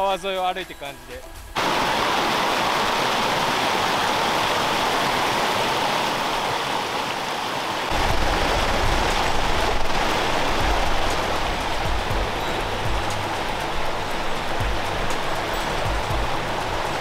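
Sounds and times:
stream rushing over rocks: 0:01.6 - 0:17.0
low rumble: 0:07.9 - 0:15.2.

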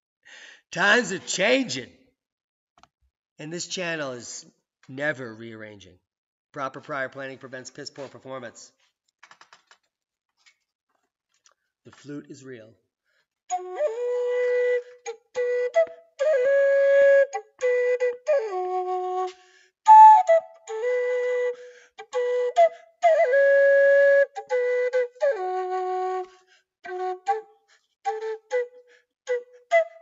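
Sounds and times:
wooden flute melody: 0:13.5 - 0:30.0.

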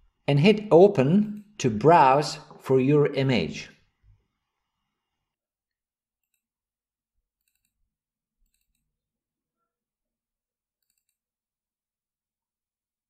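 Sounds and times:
computer mouse clicks: 0:06.2 - 0:06.5, 0:07.4 - 0:07.8, 0:08.4 - 0:08.9, 0:10.8 - 0:11.2.

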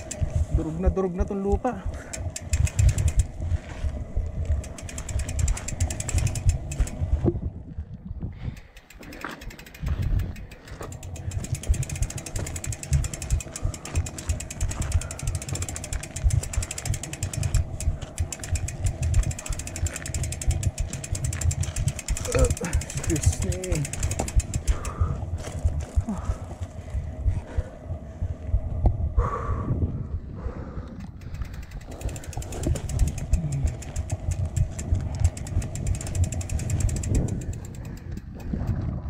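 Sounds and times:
bike freehub ticking: 0:00.0 - 0:07.5, 0:08.3 - 0:39.0
low rough rumble: 0:00.0 - 0:39.0.

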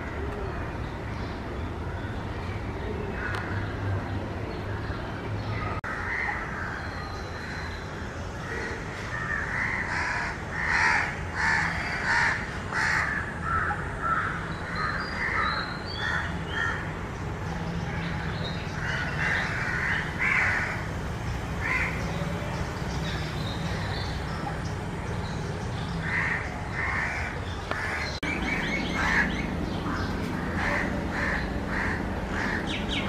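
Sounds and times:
crows cawing: 0:08.5 - 0:16.8, 0:18.8 - 0:20.9, 0:21.6 - 0:22.0, 0:26.0 - 0:28.2, 0:28.9 - 0:33.0.

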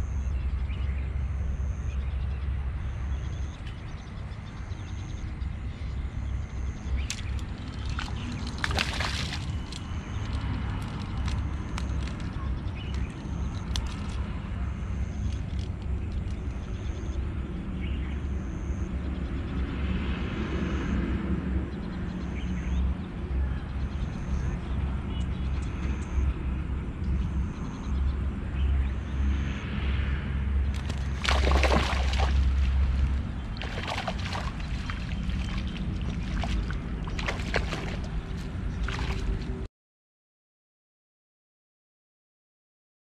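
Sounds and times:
low outdoor rumble: 0:00.0 - 0:39.7
wind buffeting microphone: 0:03.2 - 0:18.1, 0:30.2 - 0:39.7.

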